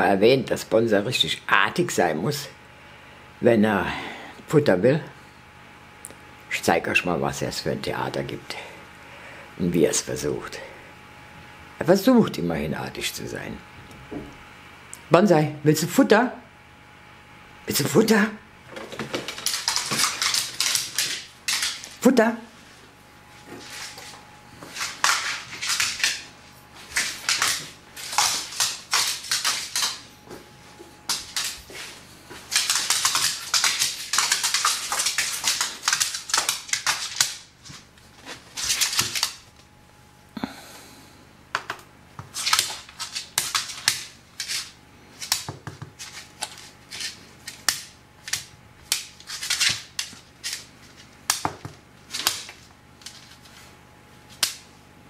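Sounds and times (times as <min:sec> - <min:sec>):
dog claws clicking on floor: 0:18.7 - 0:22.0, 0:23.8 - 0:30.1, 0:31.1 - 0:39.6, 0:41.6 - 0:53.6.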